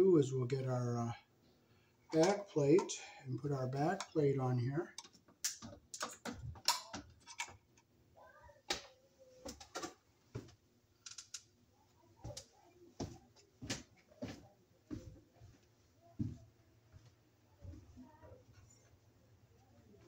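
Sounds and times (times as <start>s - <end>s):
light clicks and knocks of handled parts: 2.1s - 3.1s, 5.0s - 7.9s, 11.0s - 11.5s.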